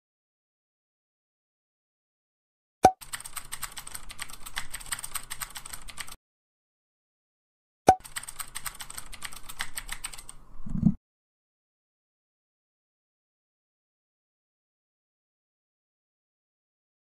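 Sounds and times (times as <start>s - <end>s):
rapid keyboard clicks: 3.0s - 6.2s, 8.0s - 10.4s.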